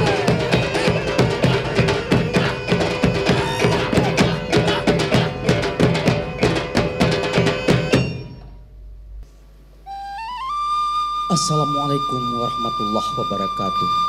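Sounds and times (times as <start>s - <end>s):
drums playing fast rhythm: 0.0s - 8.4s.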